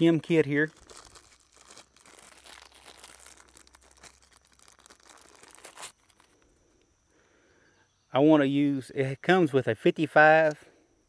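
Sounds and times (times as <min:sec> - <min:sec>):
faint crinkling: 0:00.0 - 0:07.5.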